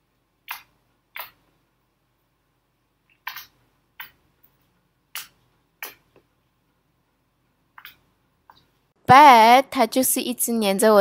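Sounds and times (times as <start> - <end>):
slime squelching and popping: 0.4 - 1.5, 3.0 - 4.3, 5.1 - 6.2.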